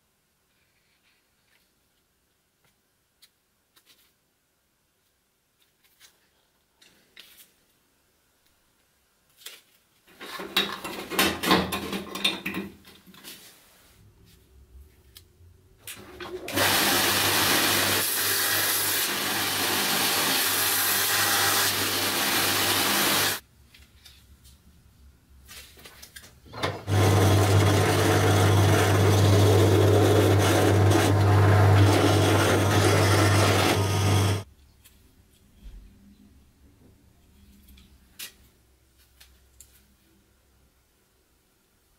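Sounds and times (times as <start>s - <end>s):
belt grinder sanding: 16.5s - 23.4s, 26.9s - 34.4s
drill press motor hum: 26.8s - 34.4s.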